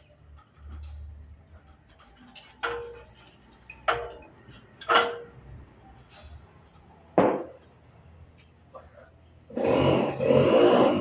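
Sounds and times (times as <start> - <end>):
metal-on-metal clanks: 0.0 - 5.6.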